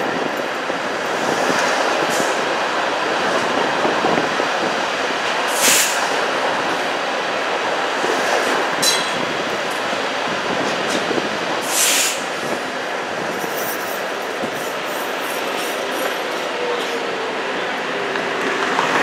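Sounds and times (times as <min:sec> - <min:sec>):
streetcar rumbling on rails: 0:00.0 - 0:19.0
short hiss: 0:11.6 - 0:12.2.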